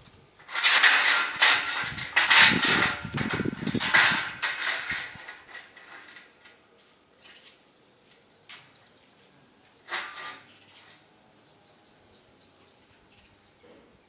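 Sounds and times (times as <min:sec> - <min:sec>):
steel bars scraping and clattering: 0:00.4 - 0:06.6, 0:09.8 - 0:11.1.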